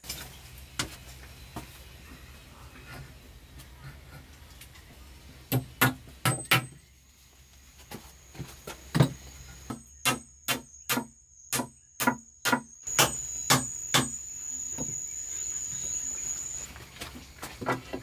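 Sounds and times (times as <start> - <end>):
sharp tool strikes: 5.5 - 6.8, 9.7 - 14.2.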